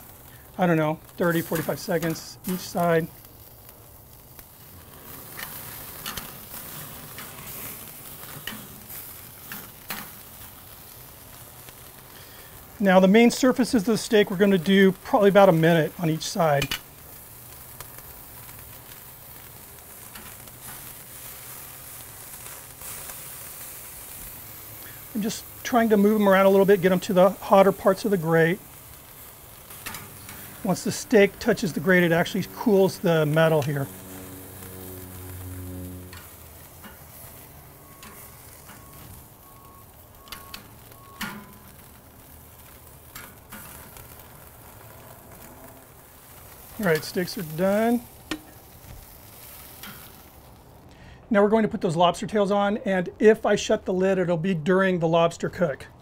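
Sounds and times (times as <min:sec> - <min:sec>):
steaks sizzling on a grill: 0:00.0 - 0:50.9
metal tongs clicking on grate: 0:29.8 - 0:30.4.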